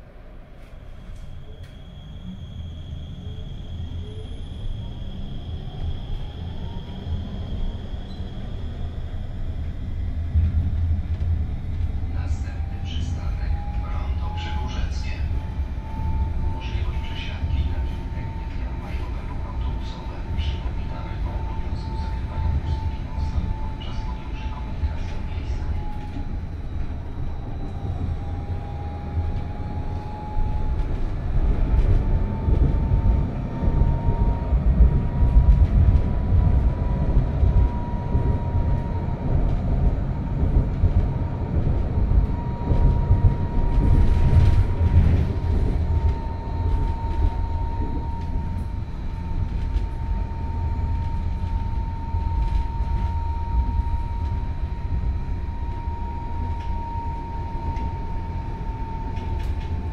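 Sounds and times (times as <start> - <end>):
tram wheels rumbling on rails: 0.0 - 59.9
high whine of traction drive: 26.0 - 59.9.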